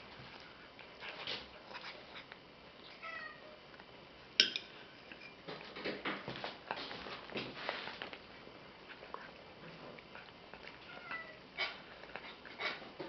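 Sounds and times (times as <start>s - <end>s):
kitten chewing wet food: 6.6s - 13.0s.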